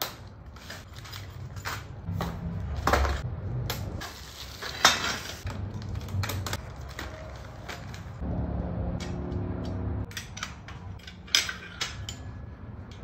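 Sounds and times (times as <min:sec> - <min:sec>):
metal parts clinking and knocking: 0:10.1 - 0:13.0.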